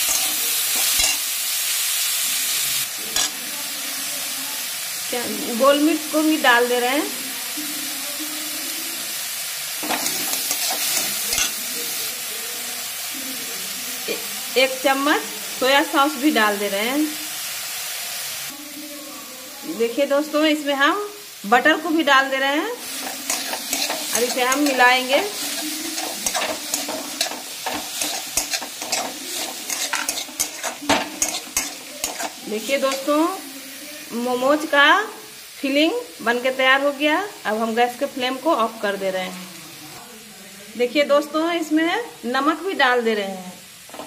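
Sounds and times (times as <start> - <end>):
metal spatula scraping pan: 0.0 - 1.2, 22.8 - 33.1
vegetables sizzling in hot oil: 0.0 - 44.0.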